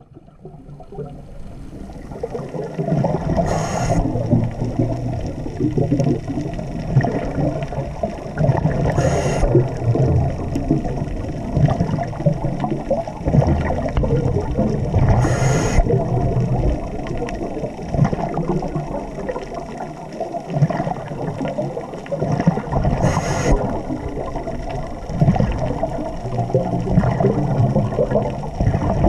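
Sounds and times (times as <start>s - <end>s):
gurgle of exhaled bubbles: 0.0s - 29.0s
regulator hissing on in-breaths: 3.4s - 4.2s, 9.0s - 9.6s, 15.2s - 15.9s, 23.0s - 23.7s.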